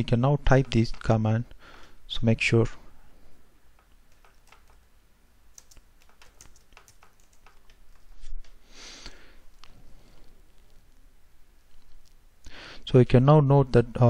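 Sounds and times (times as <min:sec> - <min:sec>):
keyboard typing: 0:03.8 - 0:04.9, 0:05.5 - 0:08.6.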